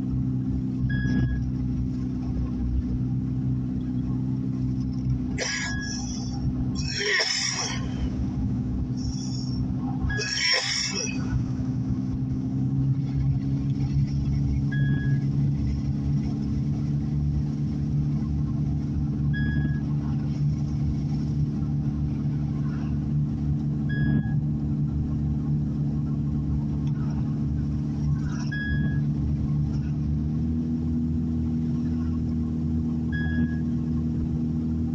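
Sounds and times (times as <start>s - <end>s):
car engine and tyres drone: 0.0s - 34.9s
short high beeps: 0.8s - 1.5s, 5.4s - 7.1s, 9.0s - 11.2s, 14.7s - 15.3s, 19.3s - 19.9s, 23.9s - 24.4s, 28.4s - 29.0s, 33.1s - 33.7s.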